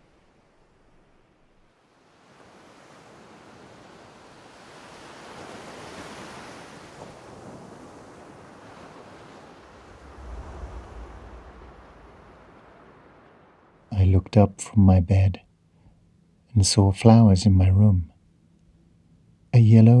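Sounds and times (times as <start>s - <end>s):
ocean surf breaking: 1.8s - 13.9s
deep low rumble: 9.9s - 12.9s.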